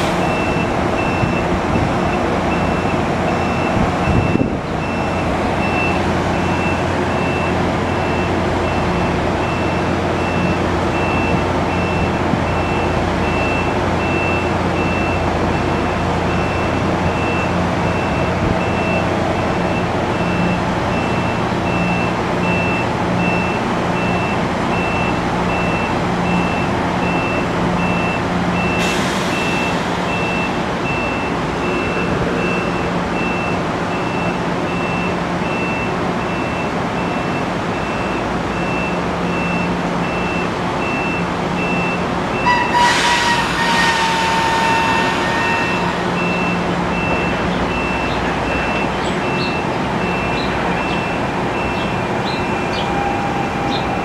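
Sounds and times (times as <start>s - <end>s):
train equipment humming: 0.0s - 54.0s
hiss of released air: 28.8s - 30.0s.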